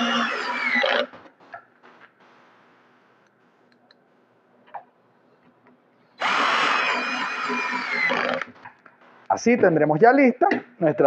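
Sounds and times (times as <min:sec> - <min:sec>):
cordless drill driving screw: 0:06.2 - 0:08.6.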